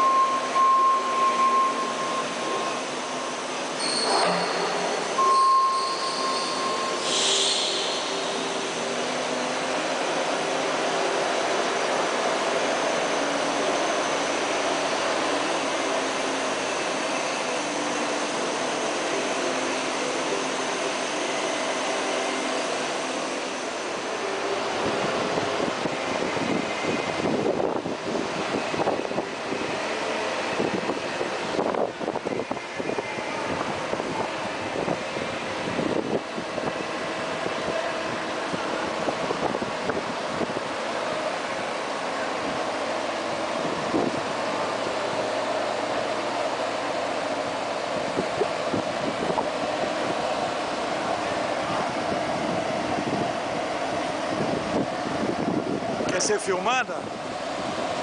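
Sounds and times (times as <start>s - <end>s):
forklift hum and whine: 0.0s - 58.0s
wind buffeting microphone: 47.9s - 50.6s, 51.4s - 56.2s.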